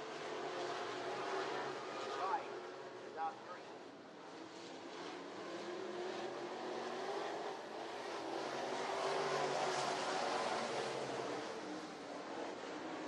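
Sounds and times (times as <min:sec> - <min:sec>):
race car engines roaring: 0:00.0 - 0:13.0.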